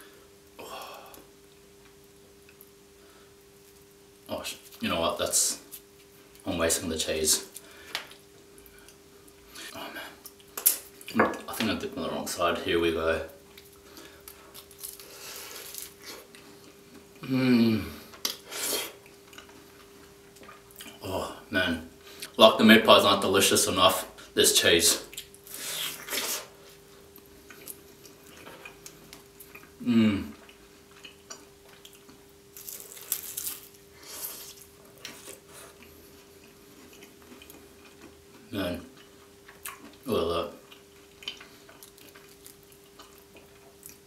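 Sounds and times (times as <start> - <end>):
man humming with pleasure: 0.6 - 1.2, 17.2 - 18.0, 29.8 - 30.4
man chewing food: 13.4 - 17.3, 18.0 - 21.0, 25.1 - 44.0
crunching: 13.6 - 16.4, 31.0 - 35.4.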